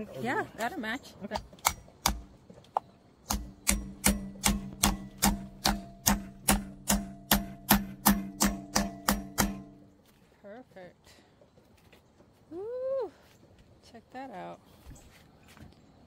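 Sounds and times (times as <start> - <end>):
hammer blows on nail: 3.3 - 9.8
wooden post ringing: 3.3 - 9.9.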